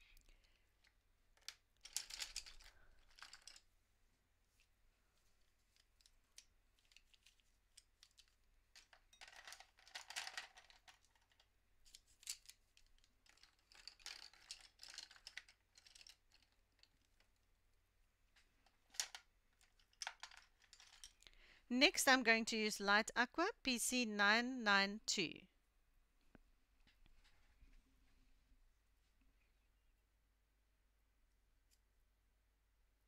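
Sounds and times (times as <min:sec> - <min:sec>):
pencils clicking and rustling: 0:00.3 - 0:03.7, 0:05.6 - 0:17.5, 0:18.4 - 0:21.3.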